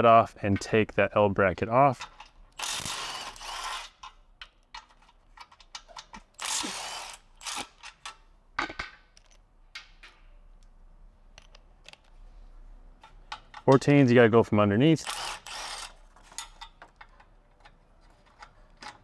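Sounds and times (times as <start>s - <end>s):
ratchet wrench clicking: 2.1s - 4.2s, 15.0s - 16.6s.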